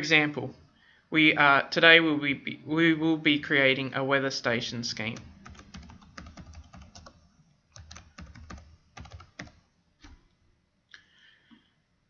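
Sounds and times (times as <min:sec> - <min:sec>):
computer keyboard typing: 0:05.0 - 0:10.2.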